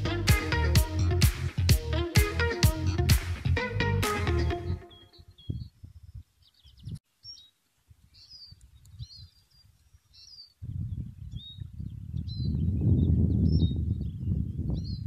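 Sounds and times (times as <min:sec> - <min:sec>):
small songbirds chirping: 0:04.5 - 0:15.0.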